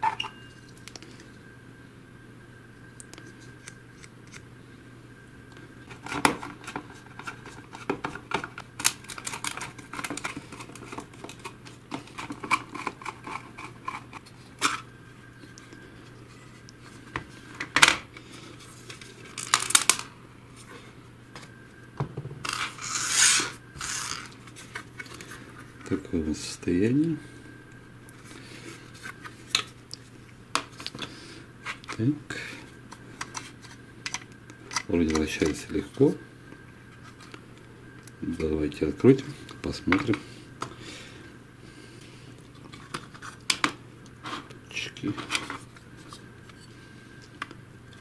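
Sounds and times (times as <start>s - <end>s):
faint steady hum: 0.0s - 48.0s
plastic parts clicking and rattling: 6.0s - 14.8s.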